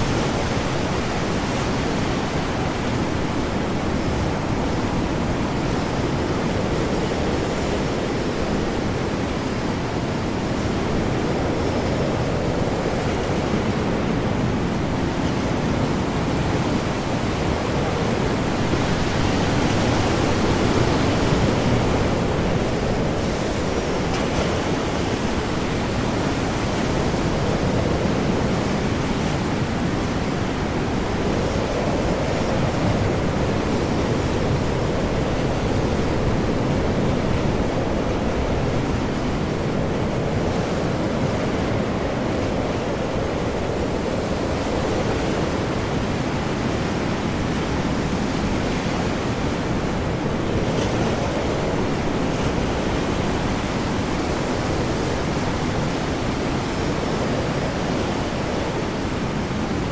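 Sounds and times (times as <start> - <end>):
heavy waves surging: 0.0 - 59.9
high wind: 0.0 - 59.9.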